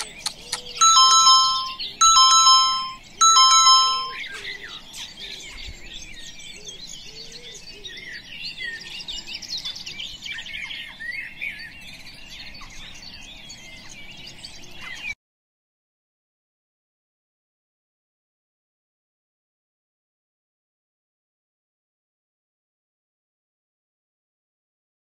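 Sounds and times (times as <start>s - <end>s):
songbirds chirping: 0.0s - 15.2s
timer alarm chime: 0.8s - 4.2s.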